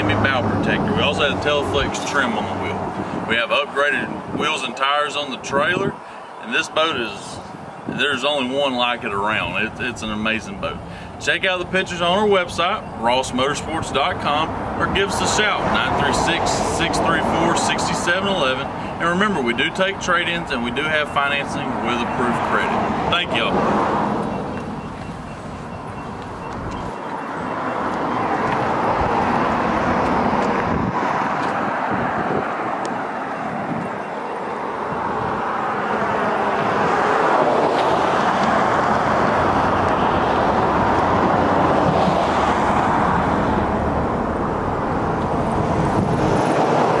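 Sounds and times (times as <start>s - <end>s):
cars passing: 0.0s - 47.0s.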